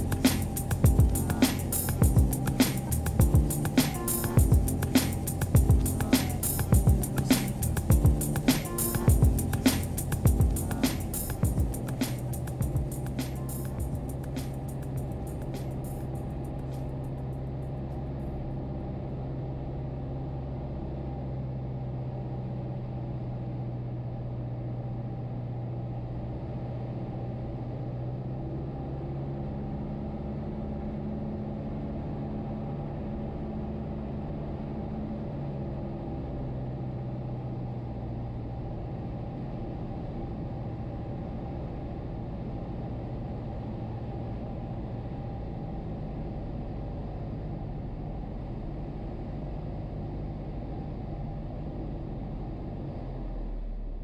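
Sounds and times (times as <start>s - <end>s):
higher tone: 0.0s - 17.1s
aircraft engine and propeller droning: 0.0s - 22.2s.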